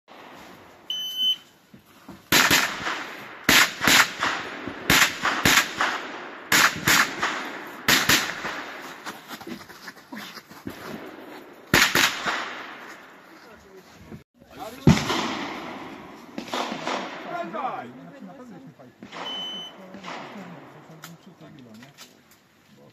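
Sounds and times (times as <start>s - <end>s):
electronic start beep: 0.9s - 1.4s
rapid pistol gunfire: 2.3s - 8.9s, 11.7s - 12.8s, 14.8s - 17.5s, 19.0s - 20.8s.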